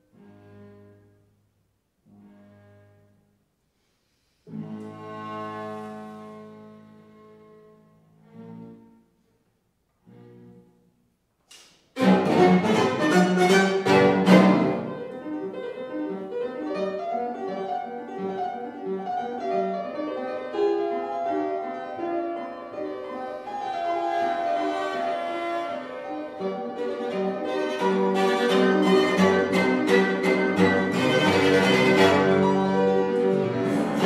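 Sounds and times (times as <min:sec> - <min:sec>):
piano trio playing chamber music: 0:04.4 - 0:09.2, 0:12.0 - 0:34.0.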